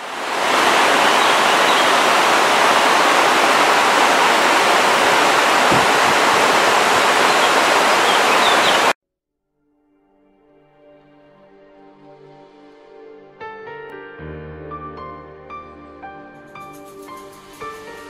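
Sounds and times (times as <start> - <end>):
loud rushing noise: 0.0 - 8.9.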